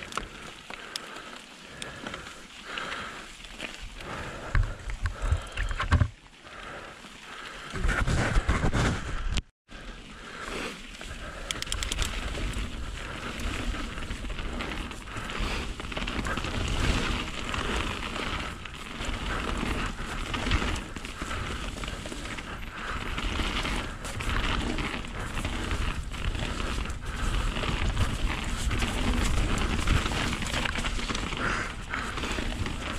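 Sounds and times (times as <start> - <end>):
bike rattling over rough ground: 0.0 - 32.9
bike tyres rolling: 0.0 - 32.9
quick ticks: 11.4 - 12.4.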